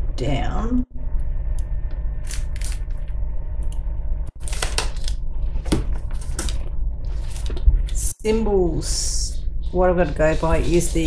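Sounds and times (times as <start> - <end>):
low hum: 0.0 - 11.0
paper sheet rustling and crinkling: 4.4 - 8.0.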